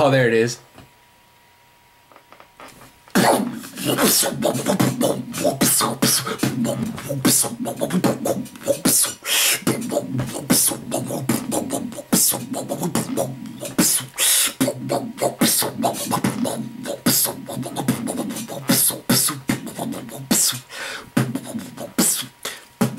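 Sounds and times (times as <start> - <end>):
beatboxing into microphone: 3.1 - 22.9.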